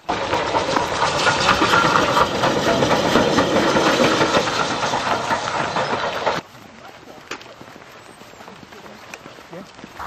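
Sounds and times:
steam hissing: 0.0s - 6.4s
locomotive exhaust beats: 0.0s - 10.0s.

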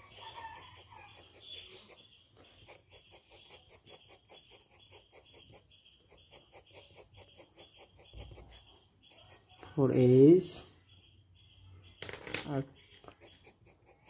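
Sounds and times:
faint bird-like call: 0.0s - 2.0s
pencil scratching on paper: 0.0s - 9.8s, 13.0s - 14.0s.

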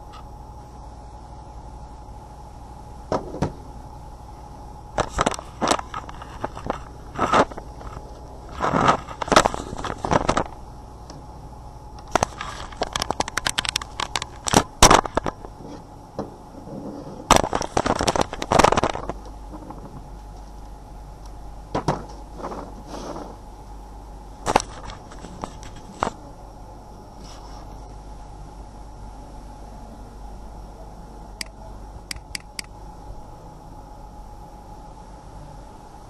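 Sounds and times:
steady low hum: 0.0s - 36.0s
plastic objects clicking and scraping: 5.0s - 10.6s, 12.0s - 15.4s, 17.3s - 19.8s.

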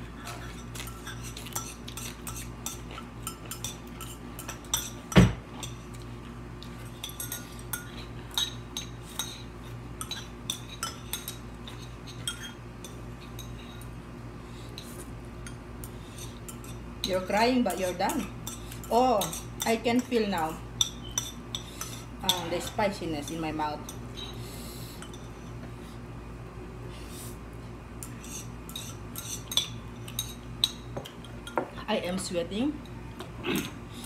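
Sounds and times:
utensils clinking on ceramic bowls: 7.0s - 13.8s.

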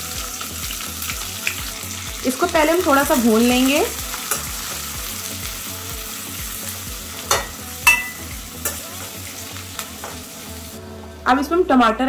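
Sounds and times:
onions sizzling in a pan: 0.0s - 10.8s
ladle clinking against pan: 7.3s - 8.8s.

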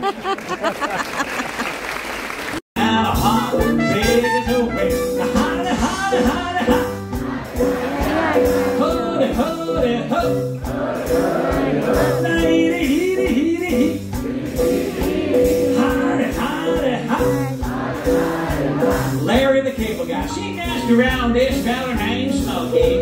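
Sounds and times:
crowd noise: 0.0s - 20.8s
man singing: 2.8s - 7.0s, 8.2s - 10.6s, 11.8s - 14.2s, 15.4s - 17.6s, 19.2s - 23.0s
live band playing jazz: 2.8s - 23.0s.

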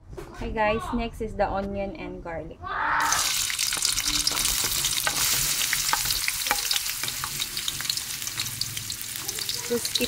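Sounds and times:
onion sizzling in hot oil: 3.0s - 10.0s
crackling pops of frying oil: 3.2s - 8.6s.

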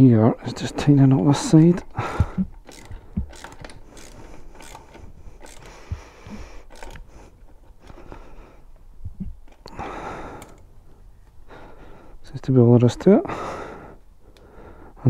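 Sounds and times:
hex key metallic clicks and scrapes: 2.6s - 5.8s, 6.6s - 7.2s.

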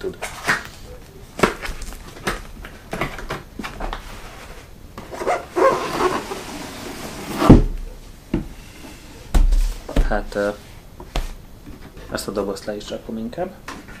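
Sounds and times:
cardboard scraping on foam: 4.1s - 7.7s.

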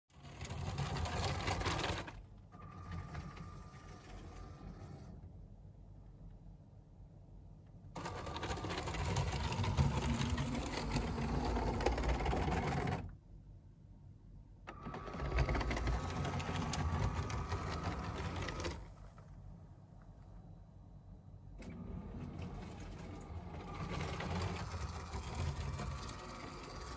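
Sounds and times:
toy train motor whirring and rattling: 0.1s - 5.2s, 8.0s - 13.1s, 14.7s - 19.0s, 21.7s - 26.9s.

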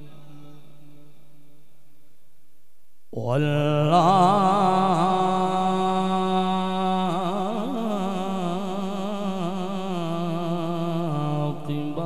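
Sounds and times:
man chanting: 0.0s - 1.2s, 3.2s - 12.0s.

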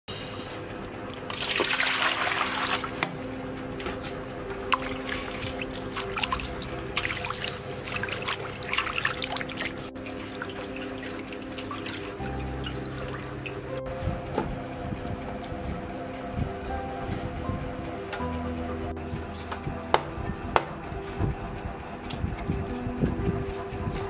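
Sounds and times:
water splashing and sloshing: 1.0s - 14.5s
water poured into metal bowl: 1.3s - 3.0s.

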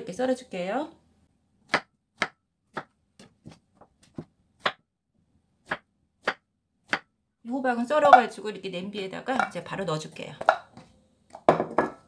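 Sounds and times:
knife knocking on cutting board: 11.4s - 12.0s.

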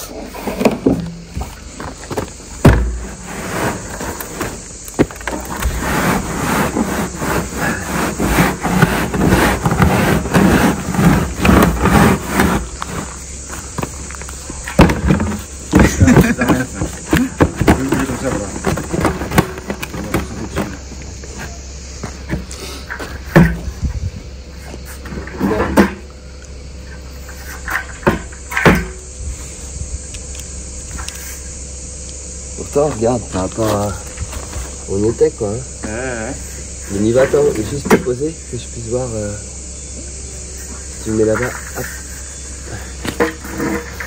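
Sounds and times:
insects trilling: 0.0s - 44.0s
heavy thump of stepping onto barrel: 0.5s - 3.3s
plastic scraping against soil: 3.0s - 4.6s, 5.3s - 13.7s.

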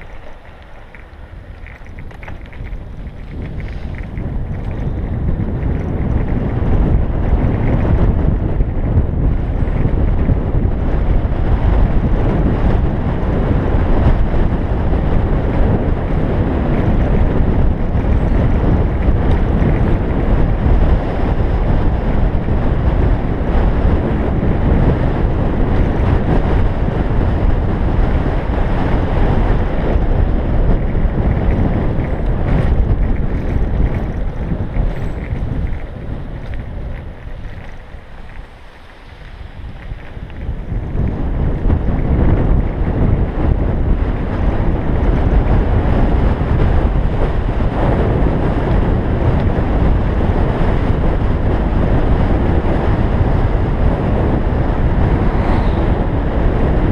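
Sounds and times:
wind buffeting microphone: 0.0s - 56.9s.

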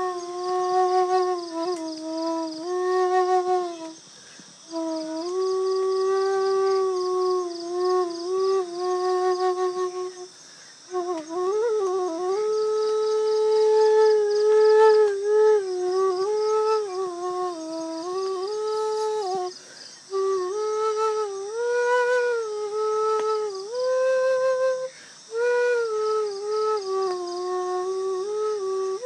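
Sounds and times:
bamboo flute melody: 0.0s - 4.0s, 4.7s - 10.3s, 10.9s - 19.5s, 20.1s - 29.0s.

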